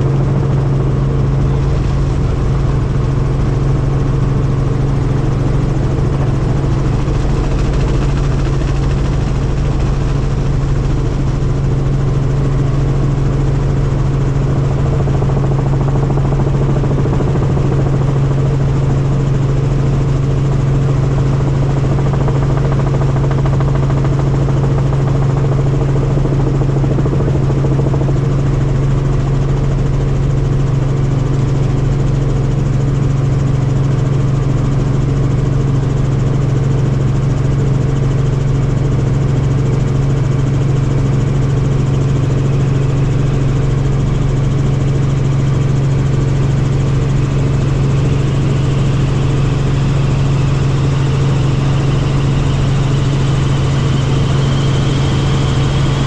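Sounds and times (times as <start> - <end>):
helicopter engine and rotors drone: 0.0 - 56.0.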